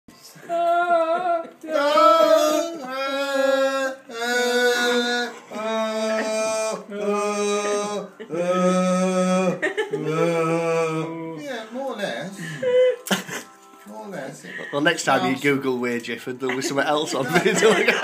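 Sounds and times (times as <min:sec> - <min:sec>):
man singing unaccompanied: 0:00.4 - 0:11.8, 0:14.8 - 0:15.7, 0:16.5 - 0:18.0.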